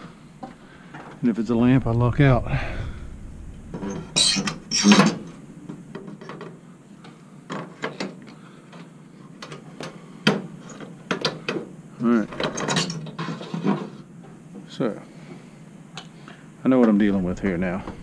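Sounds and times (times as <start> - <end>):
fluorescent tubes scraping in sockets: 3.8 - 5.4.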